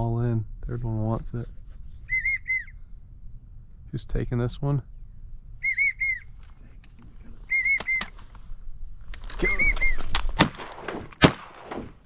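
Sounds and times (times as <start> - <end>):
duck whistles: 2.0 - 2.8, 5.6 - 6.4, 7.5 - 8.2, 9.4 - 10.1.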